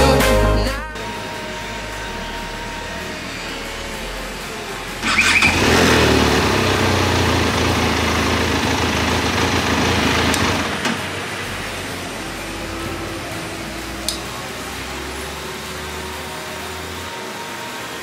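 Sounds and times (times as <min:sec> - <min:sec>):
motorcycle engine starting and running: 0:01.0 - 0:17.3
engine cut-off click: 0:05.0 - 0:11.1.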